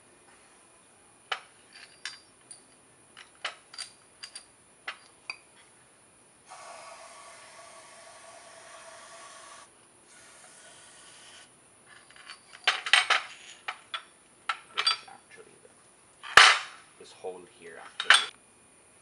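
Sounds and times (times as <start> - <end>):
metal parts clattering and knocking: 1.3 - 5.2, 11.9 - 15.1.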